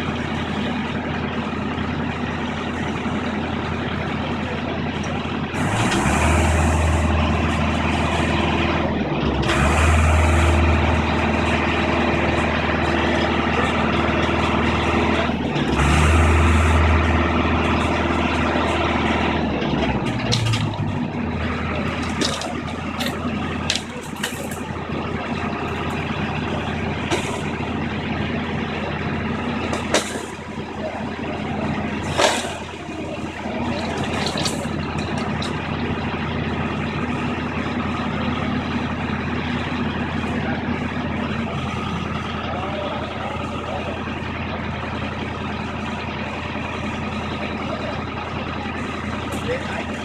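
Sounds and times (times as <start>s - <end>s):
excavator diesel engine: 0.0s - 50.0s.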